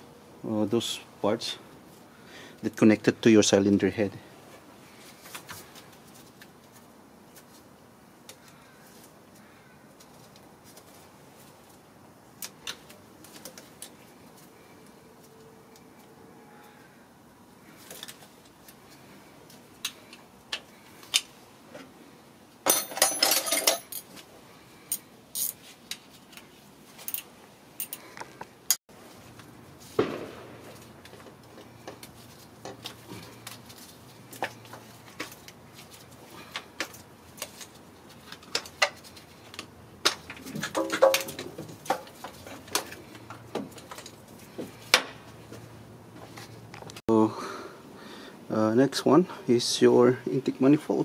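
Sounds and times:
metal engine parts clinking: 0:22.6 - 0:24.1.

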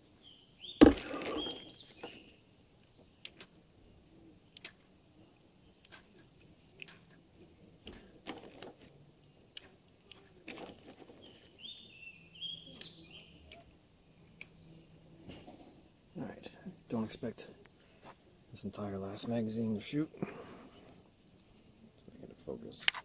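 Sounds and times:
bird chirping: 0:00.2 - 0:03.3, 0:11.2 - 0:13.6
paintball shots: 0:00.8 - 0:01.8.

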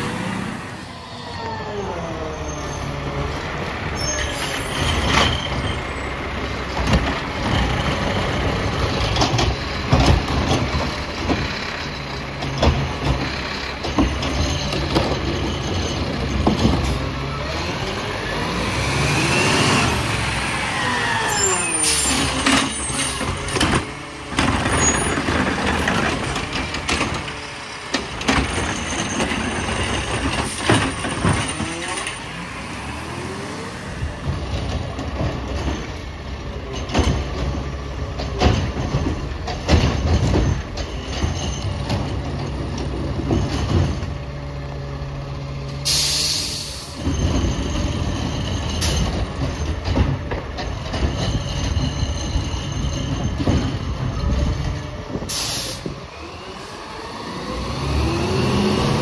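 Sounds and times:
diesel engine revving: 0:00.0 - 0:40.7, 0:53.3 - 0:59.0
air brake hiss: 0:45.8 - 0:47.0, 0:55.3 - 0:55.9.

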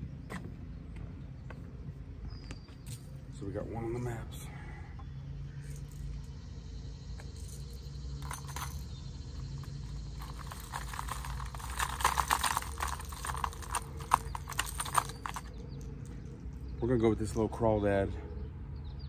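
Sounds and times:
fishing lures clicking and jangling: 0:07.5 - 0:15.6.

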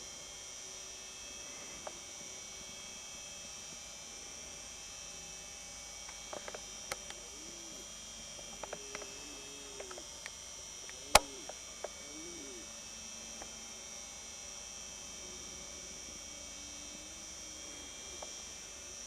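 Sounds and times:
faint distant low calls: 0:05.2 - 0:19.0
high-pitched insect drone: 0:06.2 - 0:19.0
sharp click: 0:11.1 - 0:11.4.

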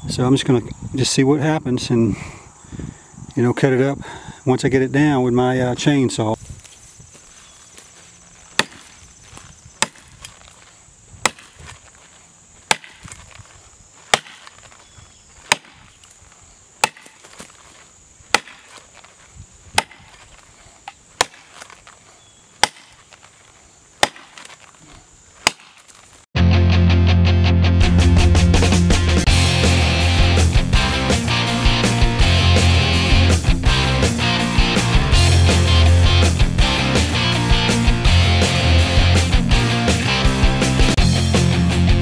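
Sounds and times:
axe chopping into tree trunk: 0:08.5 - 0:09.0, 0:09.8 - 0:10.5, 0:11.2 - 0:11.8, 0:12.6 - 0:13.5, 0:14.1 - 0:14.8, 0:15.4 - 0:16.1, 0:16.8 - 0:17.6, 0:18.3 - 0:18.8, 0:19.7 - 0:22.0, 0:22.6 - 0:23.2, 0:24.0 - 0:24.6, 0:25.4 - 0:26.0
loud music: 0:26.4 - 0:42.0.

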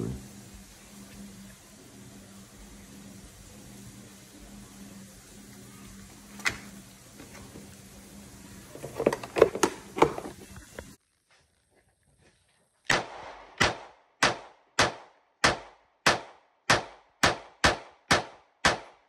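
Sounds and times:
handling clicks and knocks: 0:08.8 - 0:10.4
pistol shots: 0:12.9 - 0:19.0.

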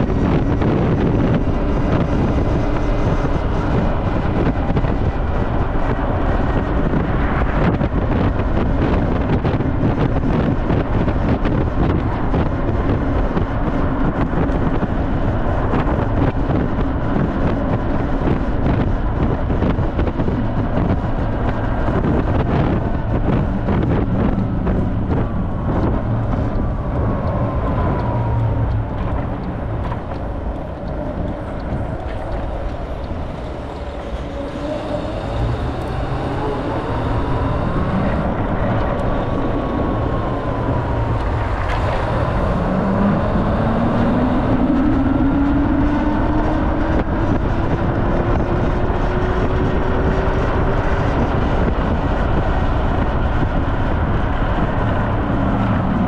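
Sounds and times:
wind rush and road noise: 0:00.0 - 0:56.0
motor whine rising in pitch: 0:30.8 - 0:50.8.

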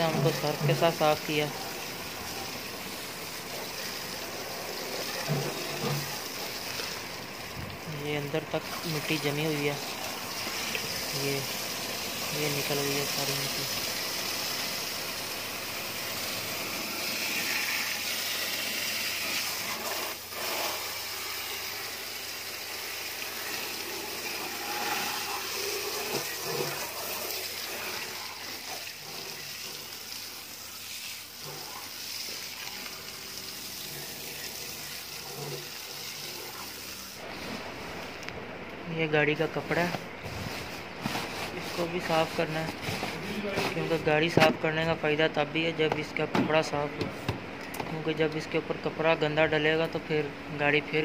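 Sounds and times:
hose water spraying on wheel: 0:00.0 - 0:38.0, 0:39.7 - 0:44.1.

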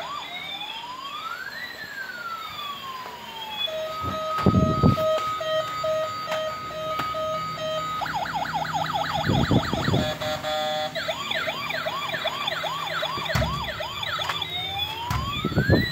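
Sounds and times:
toy siren sound effects: 0:00.0 - 0:15.9.

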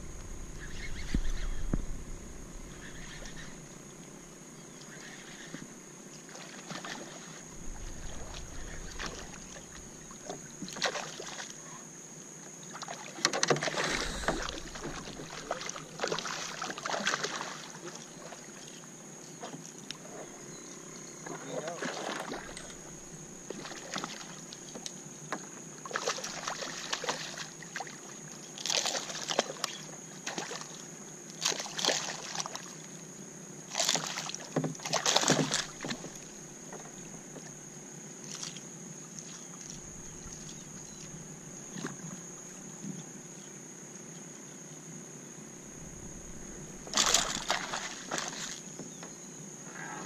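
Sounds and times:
high-pitched whine: 0:00.0 - 0:04.0
water lapping against kayak hull: 0:05.0 - 0:11.8, 0:12.6 - 0:20.4, 0:21.2 - 0:30.8, 0:31.4 - 0:32.9, 0:33.7 - 0:37.6, 0:38.2 - 0:43.0, 0:45.6 - 0:49.3.

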